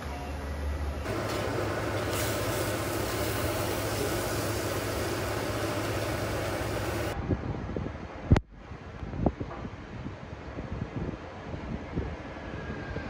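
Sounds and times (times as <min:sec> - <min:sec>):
water boiling in a pot: 0:01.1 - 0:07.2.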